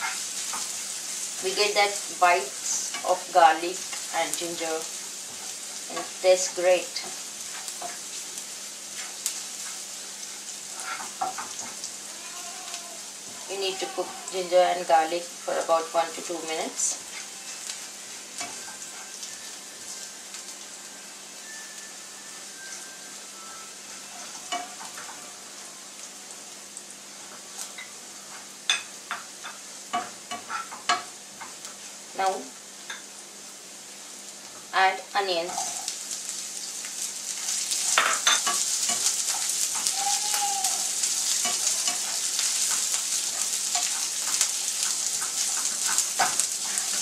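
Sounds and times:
garlic sizzling in hot oil: 0.0s - 47.0s
spatula scraping and tapping pan: 10.8s - 11.8s, 24.2s - 25.2s, 41.2s - 47.0s.

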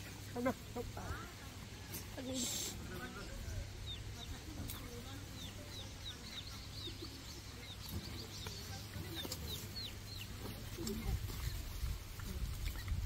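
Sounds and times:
high chirping calls: 2.4s - 11.7s.

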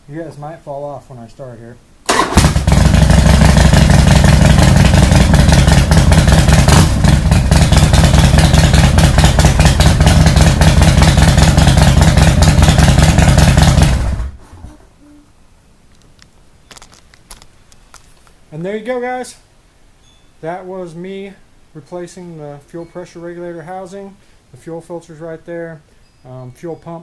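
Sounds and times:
motorcycle engine running: 2.4s - 14.4s.

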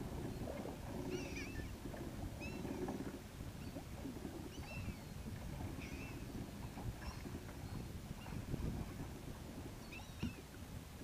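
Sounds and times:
water noise: 0.0s - 11.0s
wind: 0.0s - 11.0s
gulls calling: 1.0s - 1.7s.

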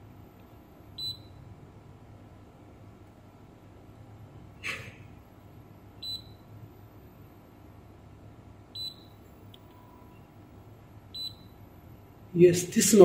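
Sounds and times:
multimeter beep: 1.0s - 1.4s, 6.0s - 6.5s, 8.7s - 10.3s, 11.1s - 11.6s.

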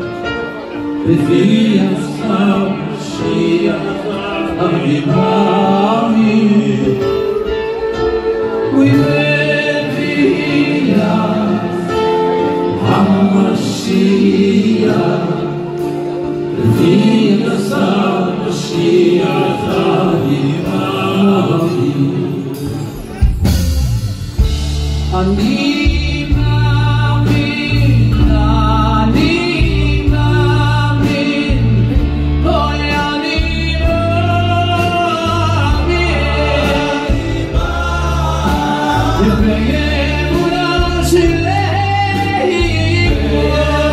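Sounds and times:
amplified instrumental accompaniment: 0.0s - 43.9s
men singing into microphones: 1.0s - 22.9s, 25.0s - 43.9s.

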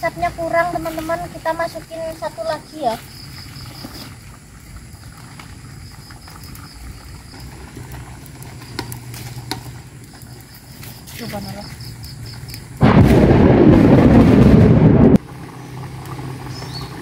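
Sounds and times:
wood fire crackling: 0.0s - 17.0s
steady low rumble: 12.7s - 15.6s.

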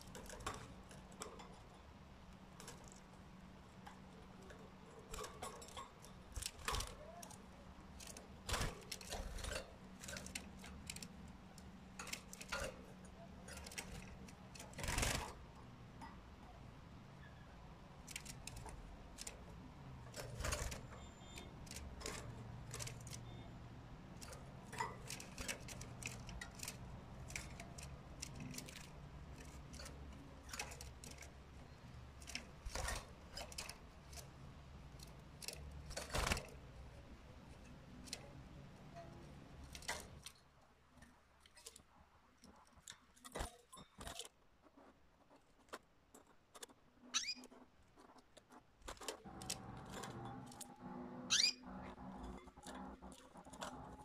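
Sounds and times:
birds clicking and tapping in cage: 0.0s - 54.0s
high bird chirps: 47.2s - 47.4s, 51.2s - 51.8s.

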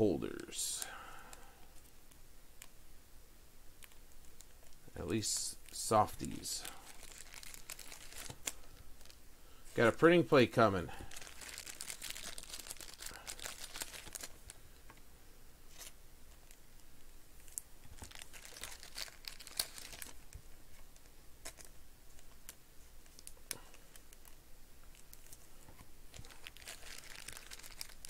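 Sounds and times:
plastic sleeves crinkling: 3.8s - 10.0s, 10.9s - 15.0s, 17.4s - 28.0s
sharp plastic crackles: 5.6s - 9.2s, 11.0s - 14.9s, 17.4s - 28.0s.

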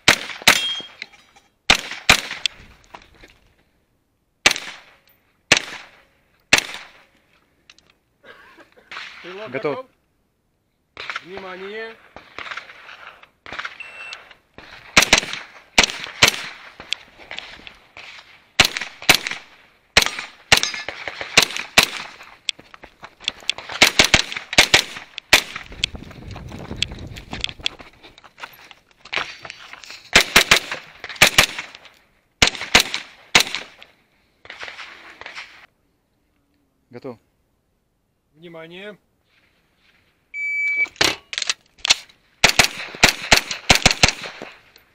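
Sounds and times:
carbine double shots: 0.0s - 1.0s, 14.9s - 16.6s, 30.1s - 31.7s, 42.4s - 44.5s
shot timer beep: 13.8s - 14.2s, 40.4s - 41.0s.

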